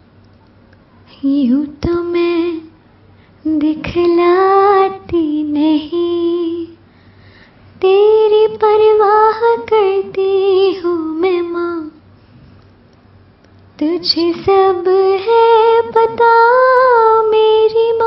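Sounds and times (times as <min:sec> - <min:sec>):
woman singing unaccompanied: 0:01.0 - 0:02.8, 0:03.4 - 0:06.9, 0:07.8 - 0:12.0, 0:13.8 - 0:18.0.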